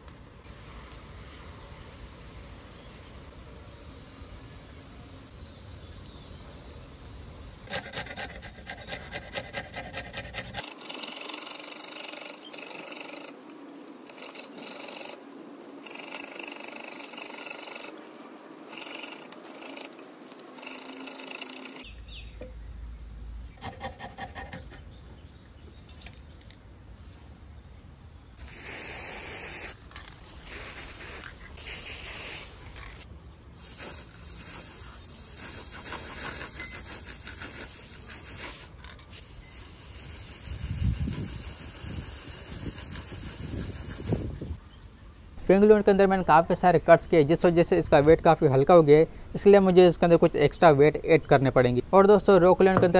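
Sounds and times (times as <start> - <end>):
hand file rasping: 7.6 - 13.4, 14.1 - 15.2, 18.7 - 21.9.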